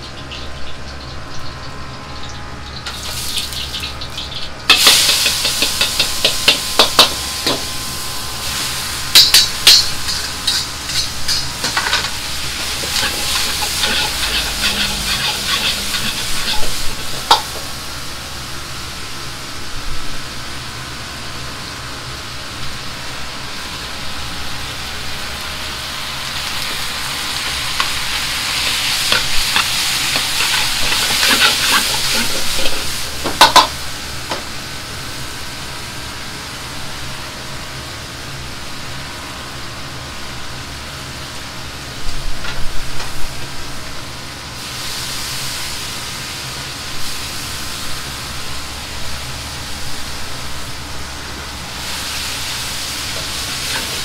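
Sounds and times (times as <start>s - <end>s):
gas burner hum: 0.0s - 54.0s
stir-fry sizzling in a wok: 0.0s - 54.0s
ladle clanking against wok: 9.2s - 17.7s, 27.5s - 33.8s.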